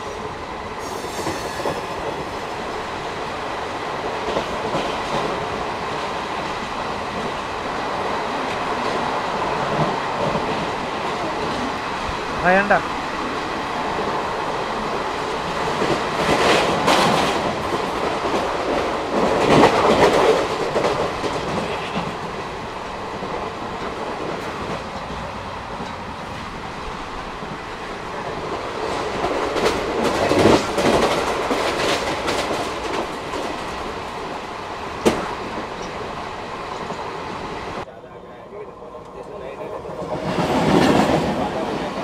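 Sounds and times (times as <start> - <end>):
rumble of track noise and wind: 0.0 - 42.0
train wheels clattering over rail joints: 15.5 - 22.3.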